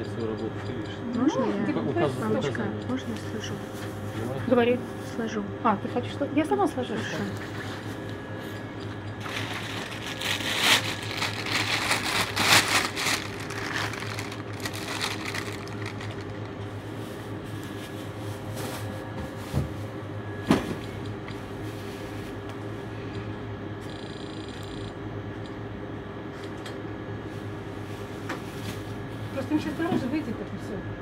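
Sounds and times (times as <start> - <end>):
steady low hum: 0.0 - 31.0
plastic bag rustling and crinkling: 9.2 - 16.6.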